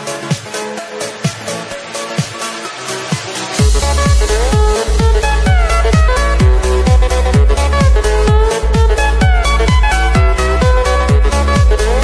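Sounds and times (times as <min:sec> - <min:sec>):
sliding synth melody: 0:01.0 - 0:12.0
kick drum: 0:03.1 - 0:12.0
deep bass: 0:03.6 - 0:12.0.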